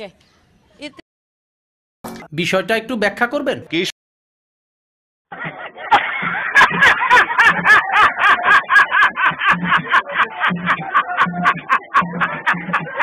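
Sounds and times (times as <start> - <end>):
man laughing loudly: 5.3 - 13.0.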